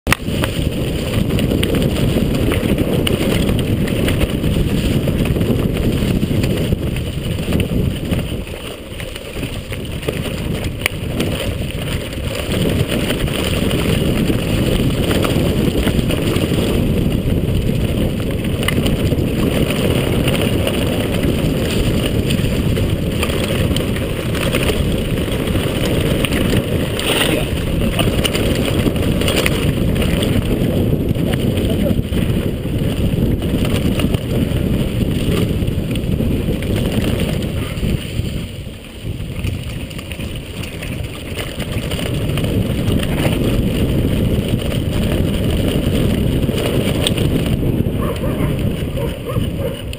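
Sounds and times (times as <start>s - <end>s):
bike rattling: 0.0s - 49.9s
bike tyre rumble: 0.0s - 49.9s
wind buffeting microphone: 0.0s - 49.9s.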